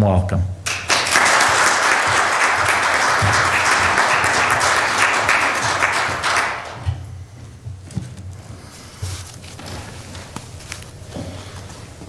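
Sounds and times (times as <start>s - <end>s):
crowd applauding: 0.7s - 7.0s.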